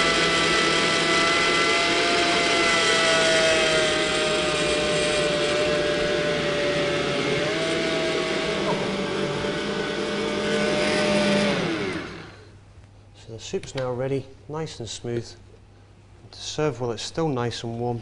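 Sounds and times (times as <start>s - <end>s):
stand mixer motor whining: 0.0s - 12.5s.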